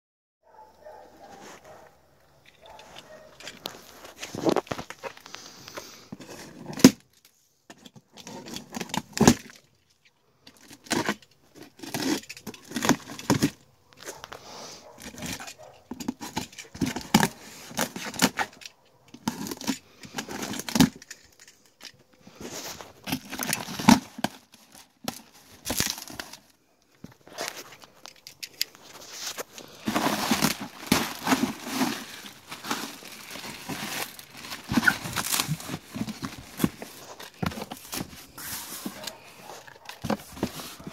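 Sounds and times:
cardboard rustling: 0:02.6 - 0:07.0, 0:10.6 - 0:21.2, 0:22.2 - 0:40.9
packing tape tearing: 0:10.6 - 0:14.3, 0:15.0 - 0:21.2, 0:22.5 - 0:26.4, 0:28.4 - 0:40.9
plastic air cushions crinkling: 0:22.4 - 0:40.9.

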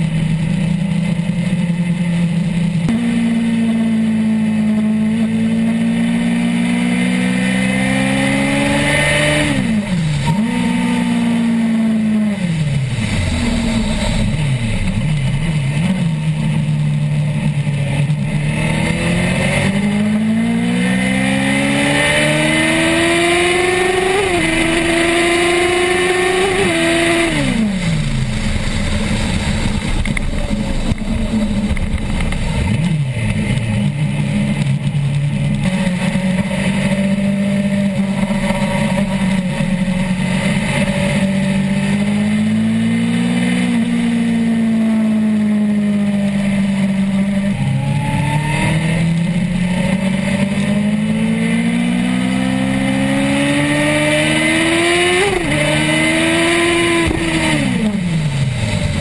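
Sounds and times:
motorcycle engine at high revs: 0:00.0 - 0:59.0
wind rush: 0:12.7 - 0:15.6.

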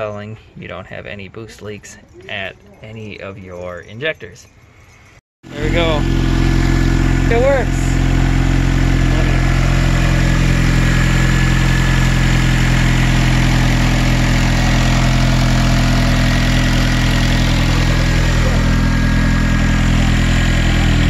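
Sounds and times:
car engine idling: 0:05.4 - 0:21.0.

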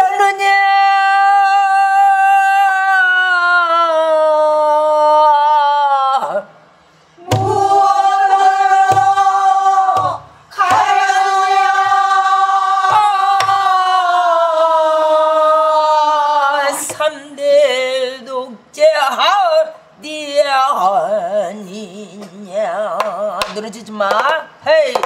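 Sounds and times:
barrel drum strikes: 0:07.3 - 0:08.0, 0:08.7 - 0:09.3, 0:09.9 - 0:11.1.

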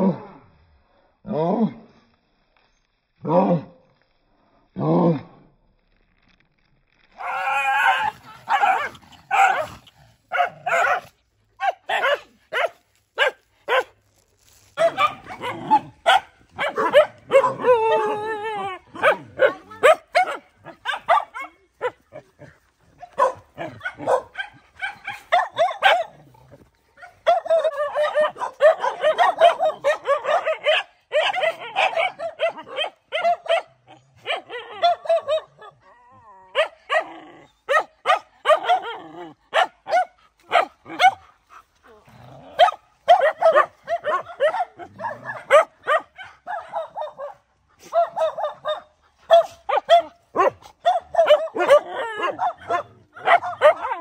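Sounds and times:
dogs barking and yipping: 0:07.2 - 0:35.9, 0:36.5 - 0:41.9, 0:42.5 - 0:54.0.

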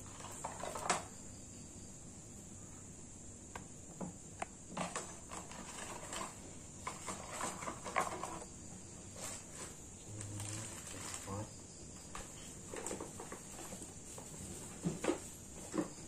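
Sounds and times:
steady high-pitched hiss: 0:00.0 - 0:16.0
small clicks and taps: 0:03.5 - 0:05.0.

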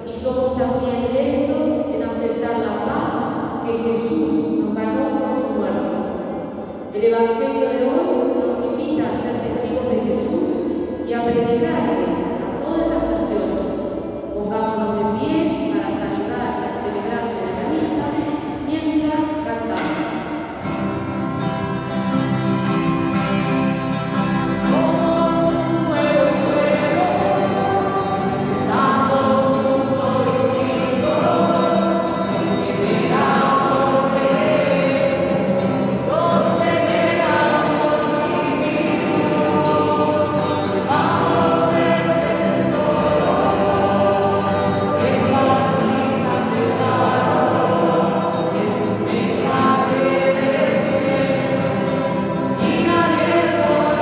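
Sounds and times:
group singing a hymn: 0:22.9 - 0:54.0.

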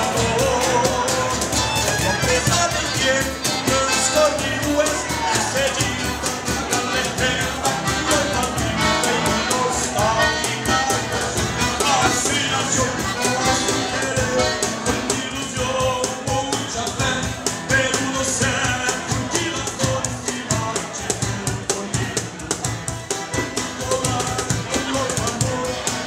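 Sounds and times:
percussion steady beat: 0:00.0 - 0:26.0
piano accordion playing: 0:00.9 - 0:04.9, 0:05.9 - 0:15.4.

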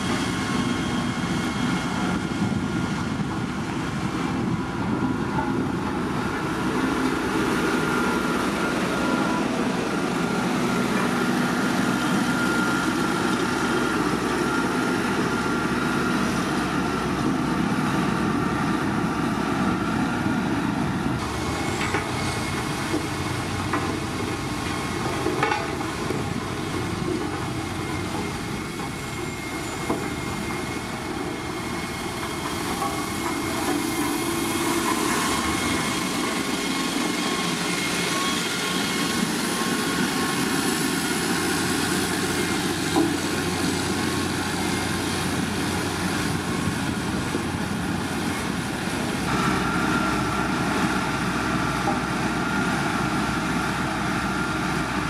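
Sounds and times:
road roller diesel engine running: 0:00.0 - 0:55.0
steel drum rolling over stone: 0:21.2 - 0:47.3.

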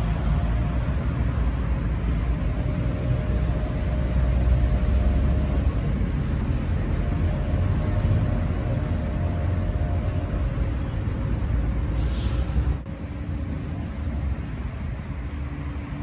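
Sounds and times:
outdoor background rumble: 0:00.0 - 0:16.0
short hiss: 0:12.0 - 0:12.6.

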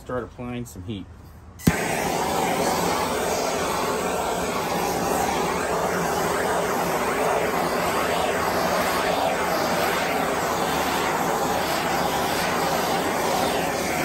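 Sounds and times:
gas torch flame hissing: 0:01.6 - 0:14.0.

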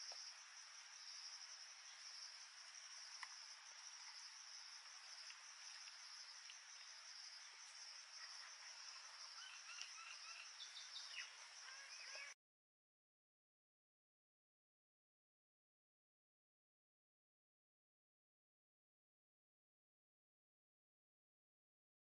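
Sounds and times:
insects chirring: 0:00.0 - 0:12.4.

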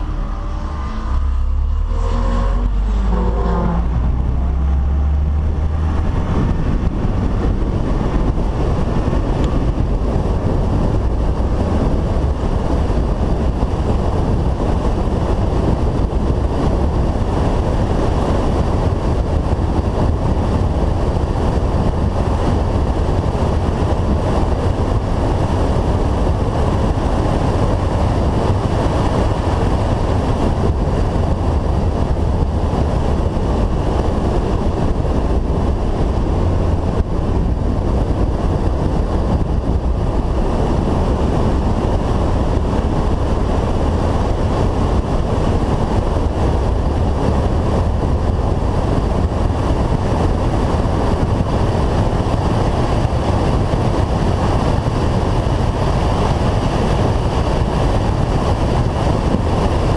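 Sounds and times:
car engine: 0:00.0 - 0:58.9
wind rushing over camera: 0:00.0 - 0:59.9.

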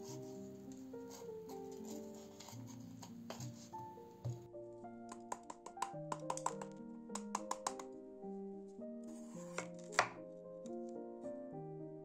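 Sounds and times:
soft piano music: 0:00.0 - 0:12.0
knock: 0:04.3 - 0:04.5
knife tapping on wooden board: 0:05.1 - 0:07.8, 0:09.5 - 0:10.2.

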